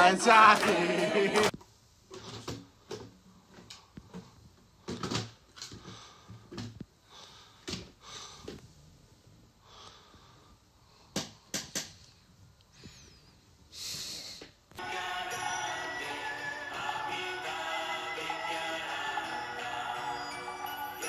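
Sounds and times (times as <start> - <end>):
plastic parts knocking and clicking: 4.8 - 6.8, 11.1 - 12.0.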